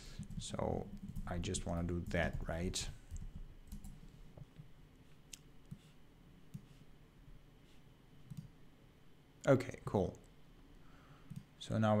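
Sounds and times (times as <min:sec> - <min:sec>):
keyboard and mouse clicks: 0:08.3 - 0:08.5.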